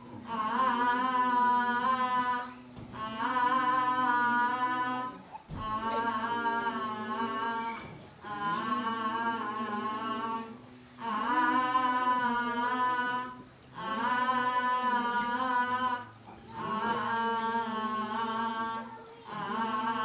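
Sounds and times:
person singing wordless tune: 0.0s - 20.0s.

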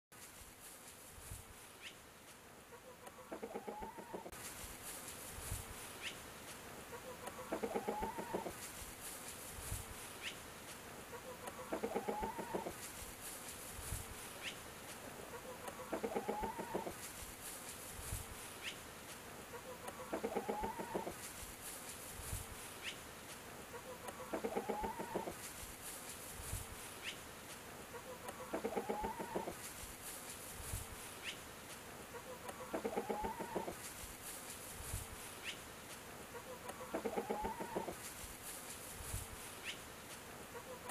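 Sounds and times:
faint high hiss: 0.1s - 40.9s
chickens clucking: 2.7s - 4.4s, 6.9s - 8.7s, 11.1s - 13.0s, 14.3s - 17.1s, 19.5s - 21.4s, 23.6s - 25.5s, 27.9s - 29.7s, 32.1s - 34.0s, 36.3s - 38.1s, 40.5s - 40.9s.

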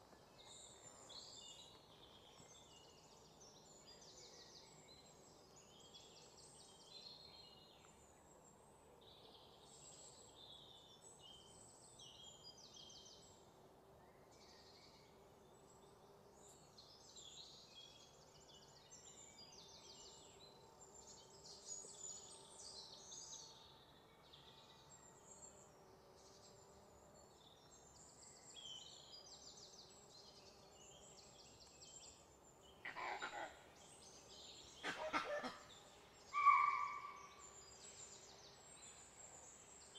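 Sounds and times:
high-pitched bird calls: 36.4s - 37.2s.

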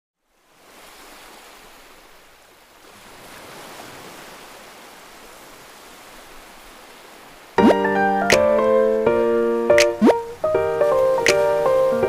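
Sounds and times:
wind: 0.2s - 12.0s
breaking waves: 0.5s - 12.0s.

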